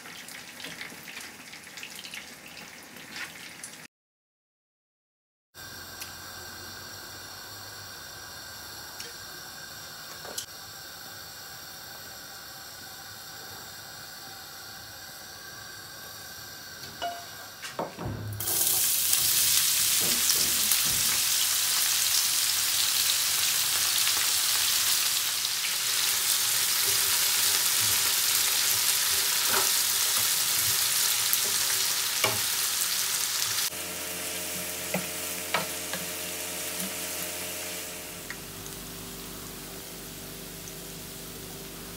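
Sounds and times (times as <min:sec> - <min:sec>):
knocks: 0:17.8 - 0:18.5
fish sizzling in hot oil: 0:18.4 - 0:41.9.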